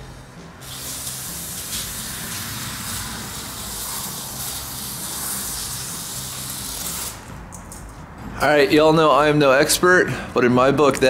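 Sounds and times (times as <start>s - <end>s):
aerosol spray can hissing: 0.6s - 7.3s.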